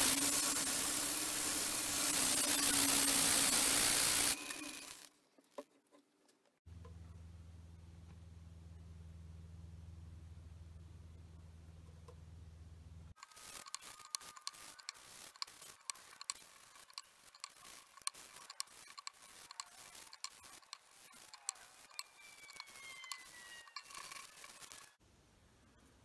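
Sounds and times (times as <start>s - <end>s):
low steady hum: 6.7s - 13.1s.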